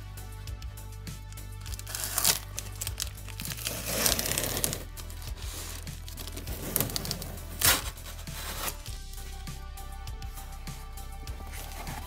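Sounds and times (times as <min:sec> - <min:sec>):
packing tape peeled off cardboard: 0:01.6 - 0:08.9, 0:11.5 - 0:12.0.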